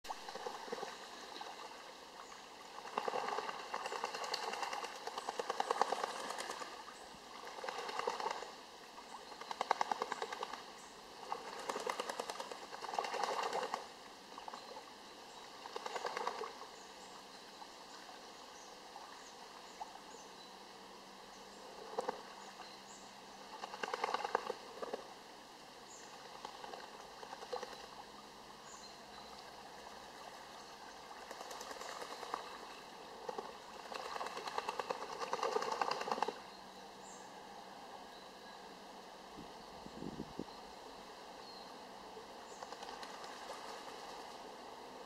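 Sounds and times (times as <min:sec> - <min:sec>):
ducks flapping wings: 0:02.8 - 0:06.8, 0:07.4 - 0:08.5, 0:09.4 - 0:13.8, 0:15.7 - 0:16.5, 0:23.6 - 0:25.0, 0:31.2 - 0:32.7, 0:33.3 - 0:36.4, 0:42.6 - 0:44.4.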